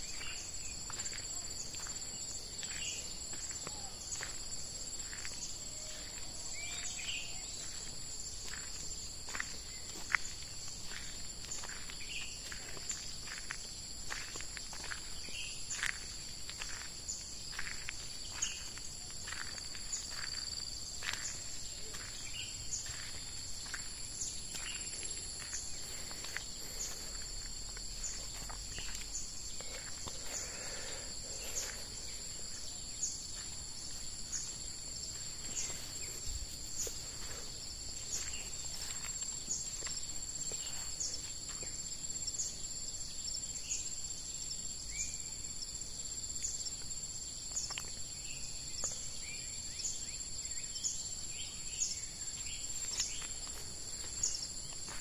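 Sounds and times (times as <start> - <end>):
footsteps on dirt path: 0.0 - 42.8, 52.3 - 55.0
insects singing: 0.0 - 55.0
bird chirps: 5.1 - 7.9.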